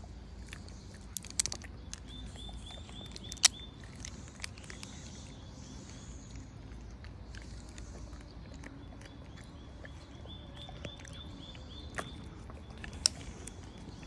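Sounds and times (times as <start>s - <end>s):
plastic cup crackling and clicking: 1.1s - 5.0s.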